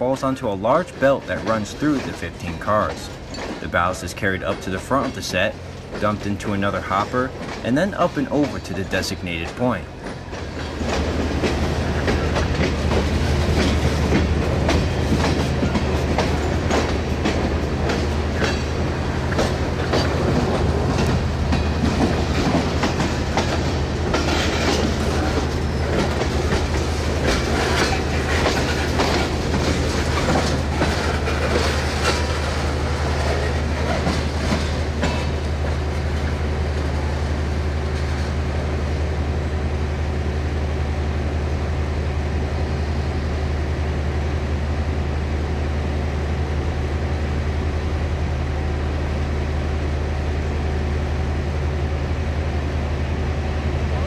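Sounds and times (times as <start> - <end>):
train wheels clacking on rails: 0.2 - 37.0.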